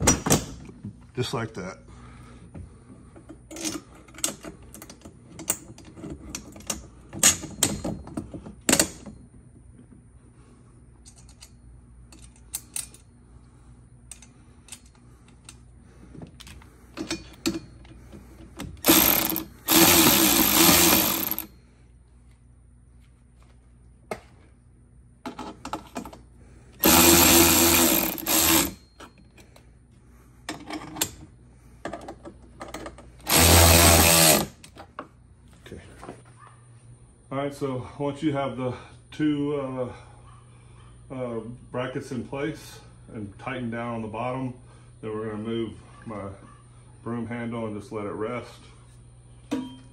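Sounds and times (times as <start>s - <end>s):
metal parts clicking and knocking: 11.0s - 13.1s, 16.4s - 21.5s
power driver running bolts: 16.4s - 21.5s, 26.8s - 29.1s, 32.1s - 34.8s.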